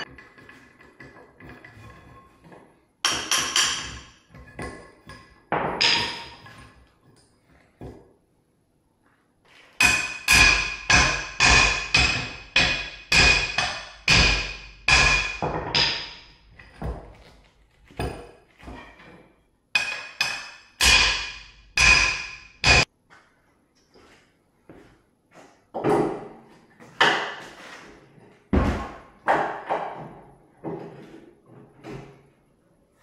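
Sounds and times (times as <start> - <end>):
hammer striking metal: 9.8 - 16.4, 19.8 - 22.9.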